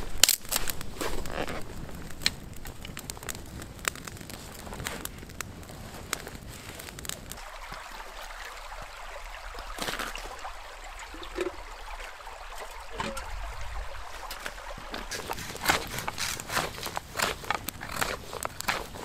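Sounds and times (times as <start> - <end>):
campfire crackling and popping: 0.0 - 19.0
stream gurgling over rocks: 0.0 - 19.0
metal pot dipped into water: 9.8 - 16.2.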